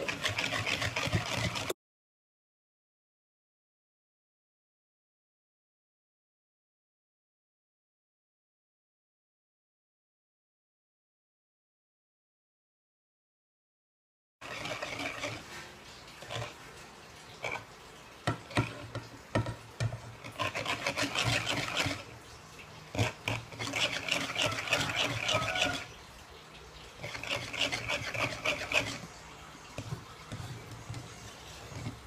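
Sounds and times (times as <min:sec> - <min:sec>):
fork beating batter: 0:00.0 - 0:01.8, 0:14.4 - 0:16.6, 0:17.4 - 0:22.2, 0:22.9 - 0:26.0, 0:27.0 - 0:32.0.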